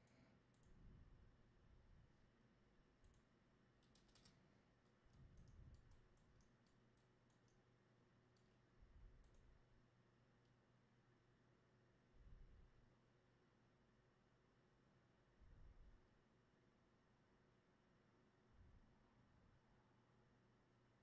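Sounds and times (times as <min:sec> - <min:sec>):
computer mouse and keyboard clicks: 0:00.0 - 0:00.8, 0:03.0 - 0:07.6, 0:09.2 - 0:09.5.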